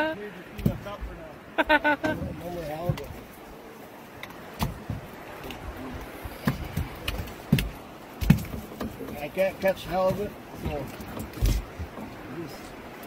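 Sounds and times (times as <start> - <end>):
fish thumping on boat deck: 4.4 - 12.2.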